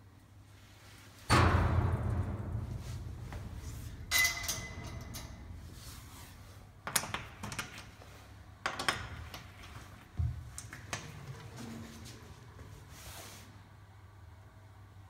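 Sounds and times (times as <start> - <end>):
sheet metal clattering: 1.3 - 7.8
low machine hum: 1.3 - 13.1.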